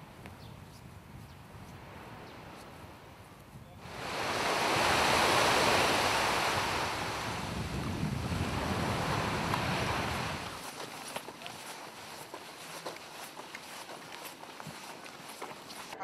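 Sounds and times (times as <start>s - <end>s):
small waves breaking on sand: 3.8s - 16.0s.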